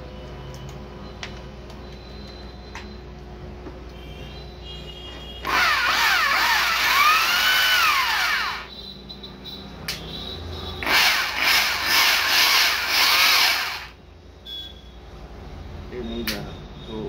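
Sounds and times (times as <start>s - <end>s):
hammer drill motor whining: 5.4s - 8.7s, 10.8s - 14.0s.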